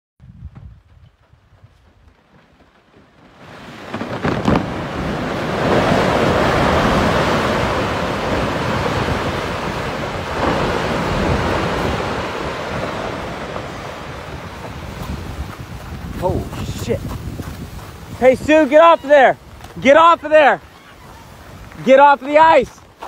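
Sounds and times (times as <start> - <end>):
ice collapsing rumble: 3.0 - 20.6.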